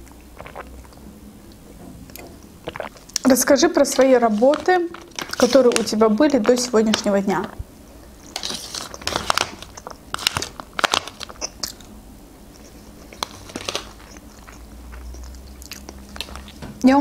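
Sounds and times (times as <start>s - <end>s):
person chewing and crunching food: 0.0s - 5.9s, 7.4s - 16.8s
plastic fork scraping foil tray: 3.8s - 7.1s, 8.2s - 10.5s.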